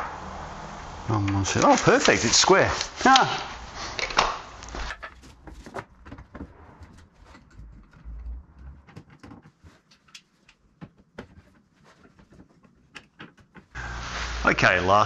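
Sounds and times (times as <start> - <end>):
metal clamps clicking and knocking: 4.0 - 11.6, 12.2 - 13.8.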